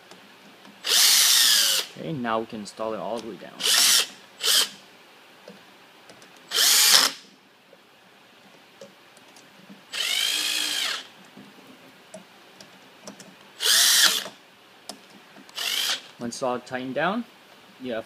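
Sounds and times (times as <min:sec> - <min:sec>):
cordless drill driving screws: 0:00.8 - 0:01.9, 0:03.6 - 0:04.8, 0:06.5 - 0:07.2, 0:09.9 - 0:11.1, 0:13.6 - 0:14.4, 0:15.5 - 0:16.1.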